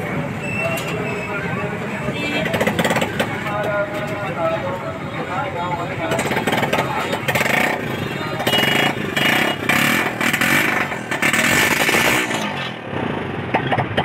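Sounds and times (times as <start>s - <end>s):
motorcycle engine revving: 6.1s - 14.0s.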